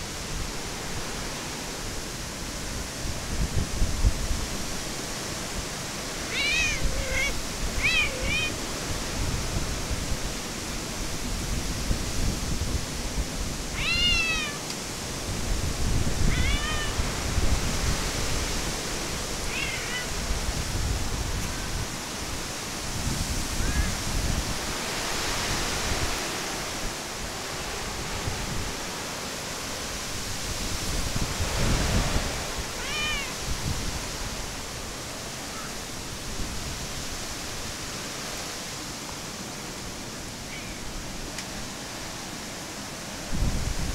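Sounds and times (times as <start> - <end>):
wind and rain: 0.0 - 43.9
wind gusts on microphone: 0.0 - 43.9
cats meowing: 6.2 - 8.7, 13.7 - 14.7, 16.2 - 17.1, 19.4 - 20.2, 32.7 - 33.4.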